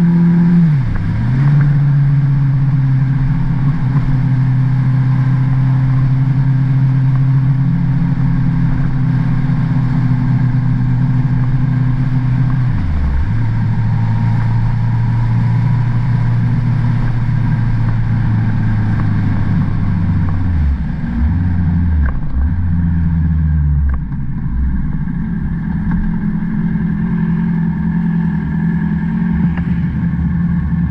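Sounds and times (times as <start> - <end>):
motorcycle engine: 0.0 - 30.9.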